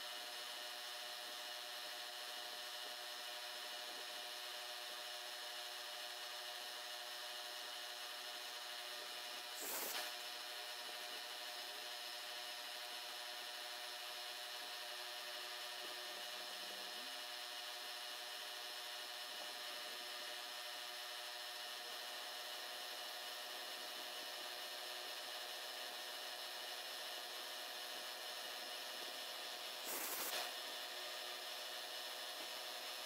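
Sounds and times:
end mill cutting hiss: 0:09.6 - 0:10.2, 0:29.8 - 0:30.5.

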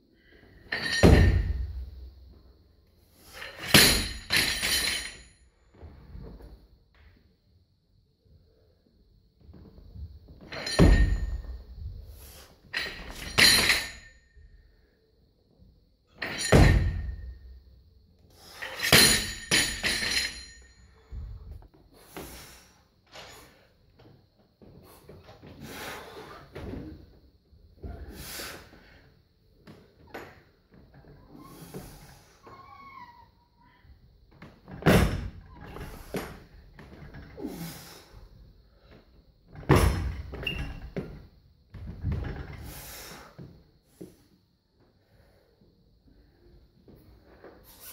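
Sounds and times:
knocks and clinks of barbell: 0:00.7 - 0:01.8, 0:03.4 - 0:05.3, 0:10.4 - 0:11.6, 0:12.7 - 0:14.2, 0:16.2 - 0:17.3, 0:18.6 - 0:20.8
barbell dropped with heavy thud: 0:00.8 - 0:01.8, 0:10.6 - 0:11.5, 0:16.2 - 0:17.3, 0:18.8 - 0:20.4, 0:34.8 - 0:36.0, 0:39.6 - 0:40.4.

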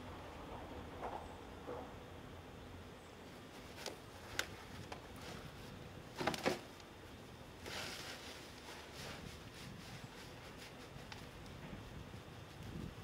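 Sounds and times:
sand and sacking rustling: 0:07.5 - 0:13.0.

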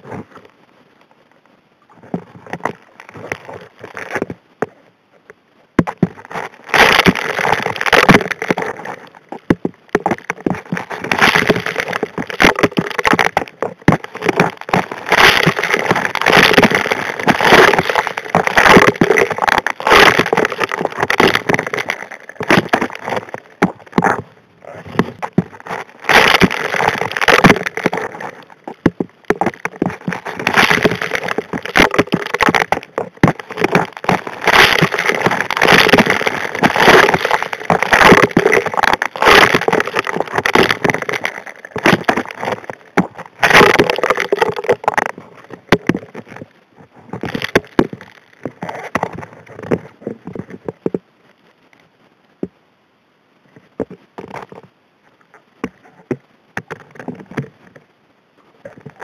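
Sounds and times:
gravel clattering in nozzle underwater: 0:05.8 - 0:51.0.

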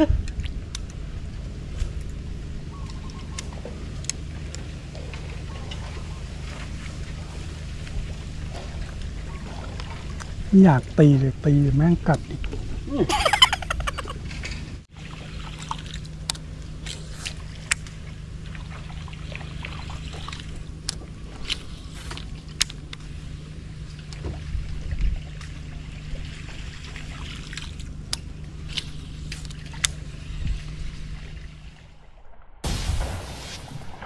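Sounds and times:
boat motor humming: 0:00.0 - 0:32.1.

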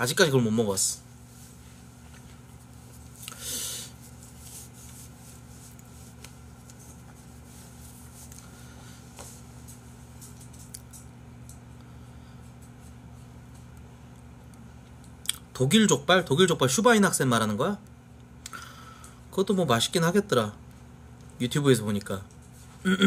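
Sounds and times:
low electrical hum: 0:00.0 - 0:23.0
rustling noise: 0:04.0 - 0:10.6.

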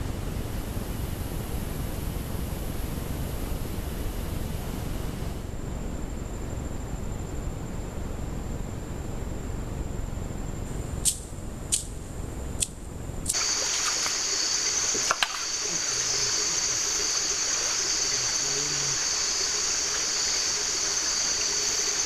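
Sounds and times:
sharp clicks: 0:11.0 - 0:12.0, 0:12.6 - 0:13.4
creek water flowing: 0:13.3 - 0:22.0
high even hiss: 0:13.3 - 0:22.0
faint men's voices: 0:14.9 - 0:19.3.

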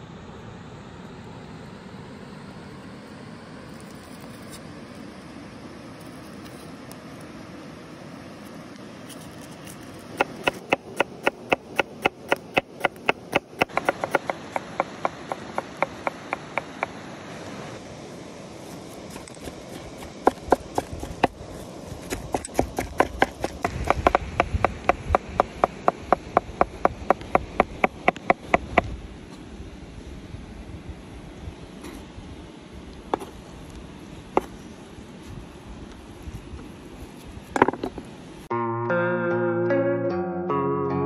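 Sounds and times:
knife chopping on wooden board: 0:10.2 - 0:17.0, 0:19.1 - 0:28.9.

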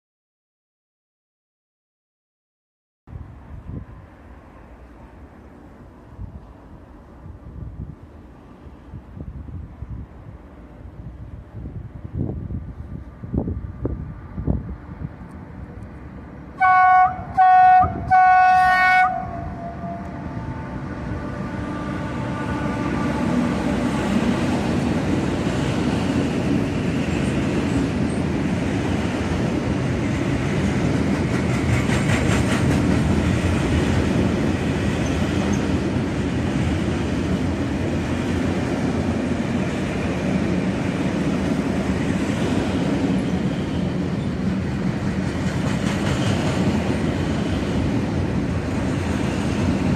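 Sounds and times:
freight train rumbling past: 0:03.1 - 0:49.9
locomotive horn blasts: 0:16.6 - 0:23.6
wheels clacking over rail joints: 0:23.4 - 0:49.9.

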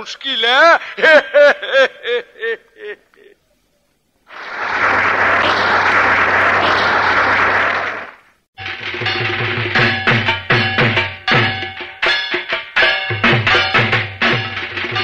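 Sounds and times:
audience applause: 0:04.3 - 0:08.3.

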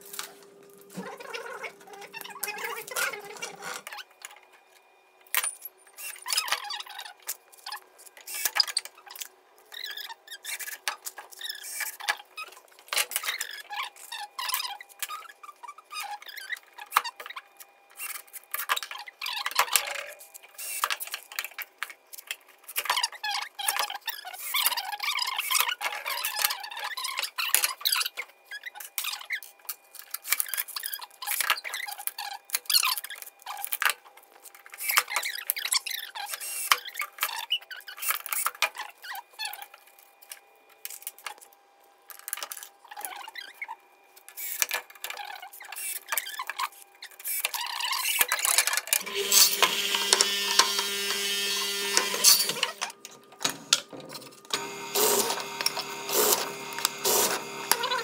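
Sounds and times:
wooden pieces and tools clicking: 0:44.2 - 0:58.0
drill press boring wood: 0:49.0 - 0:52.9, 0:54.6 - 0:58.0.

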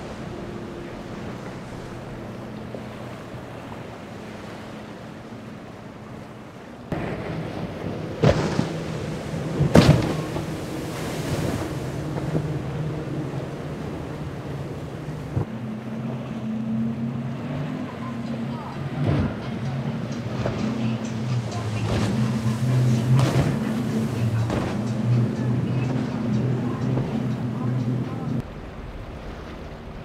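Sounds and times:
wind on microphone: 0:00.0 - 0:04.8, 0:06.9 - 0:15.5
hull hitting waves splash: 0:00.0 - 0:16.3, 0:18.6 - 0:30.0
motorboat engines running: 0:00.0 - 0:30.0
water rushing: 0:00.0 - 0:30.0.

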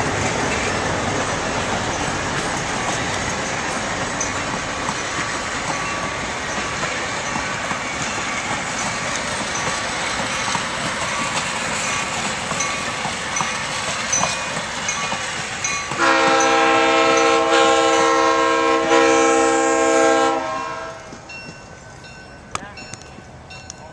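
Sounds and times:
train wheels clicking on rail joints: 0:00.0 - 0:18.0, 0:21.0 - 0:23.9
locomotive horn: 0:16.0 - 0:21.1.

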